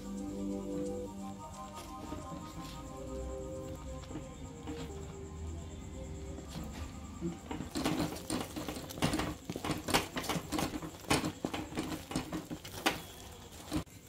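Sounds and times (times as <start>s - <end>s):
wooden spatula scraping metal pan: 7.5s - 13.9s.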